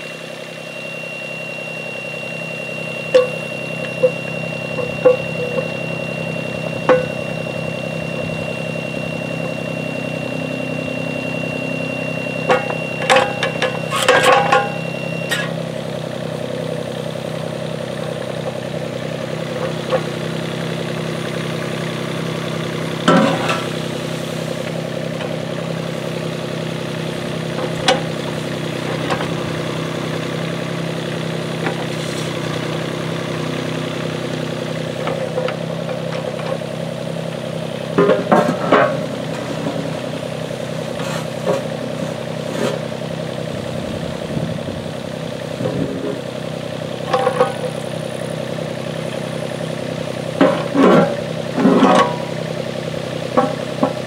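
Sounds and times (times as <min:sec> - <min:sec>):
steady high beep: 0:00.0 - 0:26.9
excavator diesel engine running: 0:00.0 - 0:54.0
metal clanks from bucket: 0:03.1 - 0:04.2, 0:12.5 - 0:15.5, 0:23.1 - 0:23.7, 0:38.0 - 0:39.0, 0:47.1 - 0:47.8, 0:50.4 - 0:52.4, 0:53.4 - 0:54.0.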